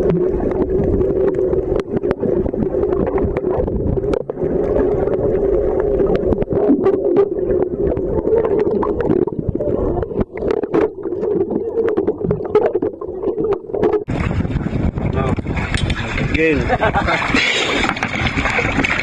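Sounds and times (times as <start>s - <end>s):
muffled underwater rush: 0.0s - 19.0s
underwater clicks and crackles: 0.0s - 19.0s.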